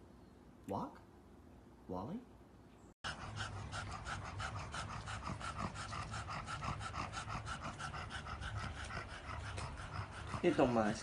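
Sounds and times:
dog panting: 3.0 - 11.0.

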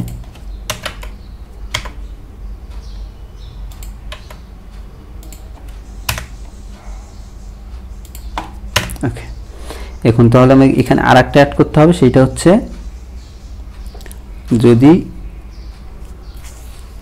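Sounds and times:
keyboard keystrokes: 0.0 - 2.0
steady low hum: 0.0 - 17.0.

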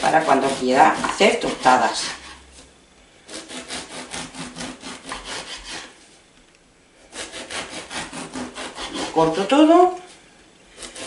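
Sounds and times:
bread knife sawing crusty bread: 0.0 - 2.7, 3.3 - 6.0, 7.1 - 9.9, 10.7 - 11.0.

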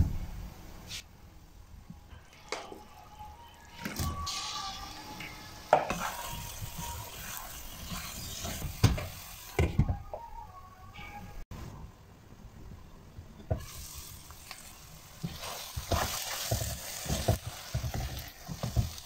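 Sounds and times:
spoon scraping a pan: 5.7 - 8.8
curry sizzling in a frying pan: 5.7 - 9.6, 13.6 - 19.0.

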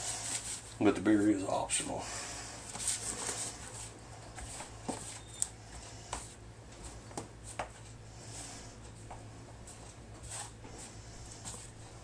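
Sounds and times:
low steady hum: 0.0 - 12.0
rustling and patting in flour: 8.9 - 12.0.

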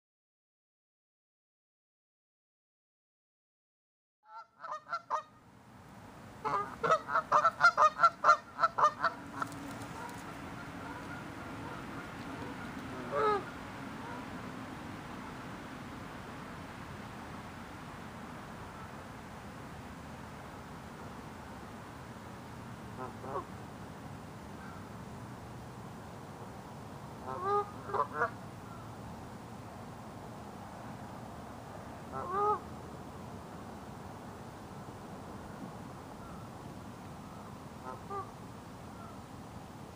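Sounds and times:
geese honking: 4.3 - 5.3, 6.4 - 14.5, 22.9 - 23.5, 27.2 - 28.8, 32.1 - 32.6, 37.3 - 38.3
steady background hiss: 5.0 - 39.9.

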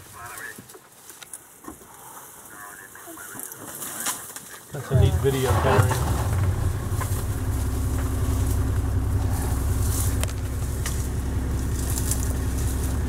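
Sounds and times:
jeep engine humming: 4.8 - 13.0.

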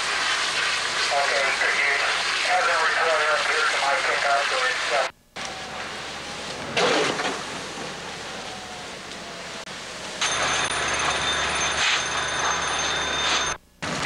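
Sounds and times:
house fire rumble and hiss: 0.0 - 14.0
thin high whine: 4.4 - 14.0.

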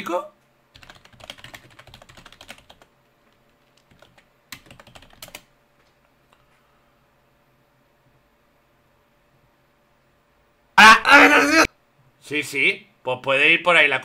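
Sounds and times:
typing on keyboard: 0.8 - 5.5.

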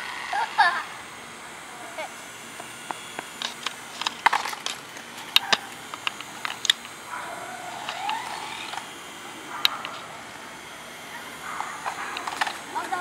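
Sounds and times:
toy car clicking and tapping: 2.9 - 7.0, 7.7 - 8.9, 11.6 - 13.0.

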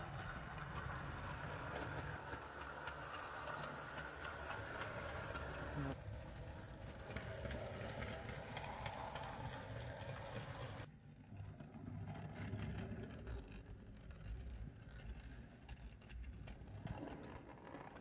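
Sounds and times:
model train motor running: 0.0 - 10.9
wheels clicking over rails: 0.0 - 18.0.

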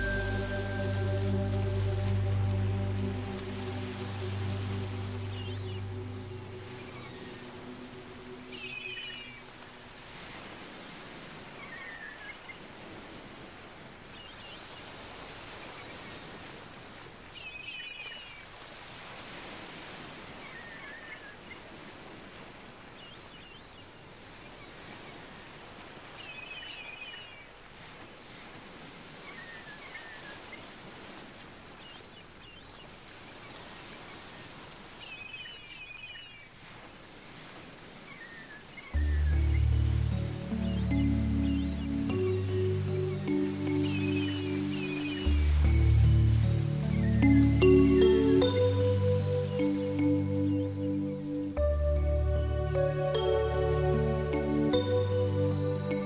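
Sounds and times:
birds chirping: 0.0 - 9.6, 38.2 - 56.0
steady hiss: 0.0 - 10.9.

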